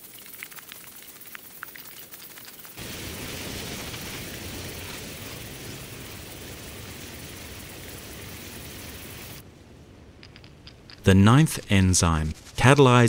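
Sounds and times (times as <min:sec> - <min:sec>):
steady rushing airy noise: 0:02.8 - 0:10.2.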